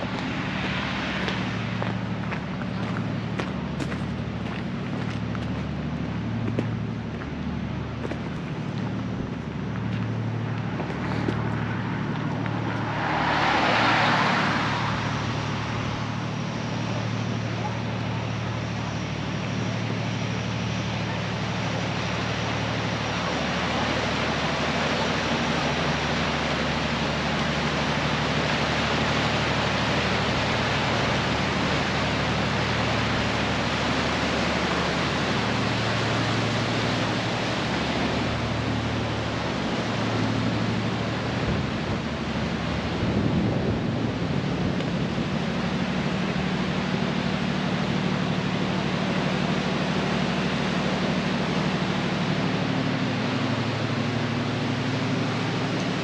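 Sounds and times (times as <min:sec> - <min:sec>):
low engine hum: 0:00.0 - 0:56.0
loud rushing noise: 0:10.3 - 0:17.5.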